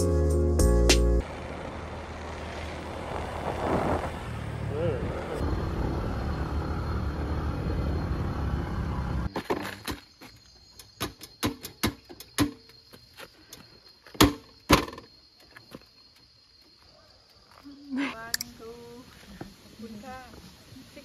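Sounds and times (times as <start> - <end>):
motor scooter engine and wind: 1.2 - 9.2.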